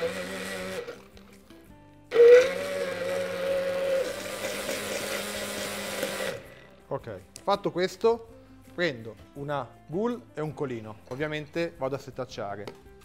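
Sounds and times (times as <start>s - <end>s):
stick blender running: 0.0s - 1.3s, 2.1s - 6.7s.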